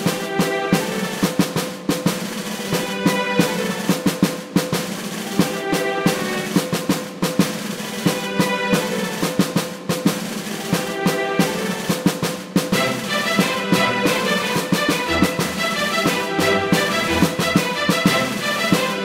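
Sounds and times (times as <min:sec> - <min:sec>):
rapid drumming: 0:00.0 - 0:19.0
held pitched notes: 0:15.0 - 0:17.6.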